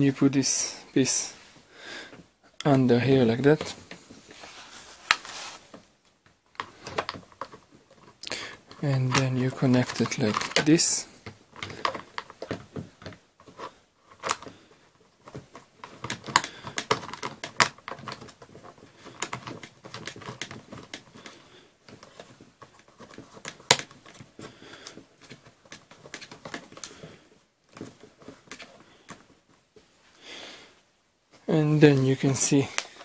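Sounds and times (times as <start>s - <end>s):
hard plastic clicking and scraping: 5.0s - 29.4s, 32.1s - 33.0s.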